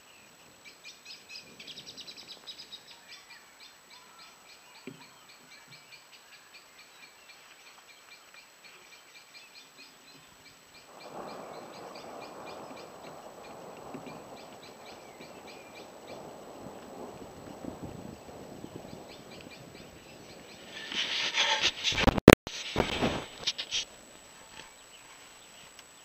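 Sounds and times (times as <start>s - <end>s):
insects chirping: 0.0s - 26.0s
rushing noise: 19.3s - 23.9s.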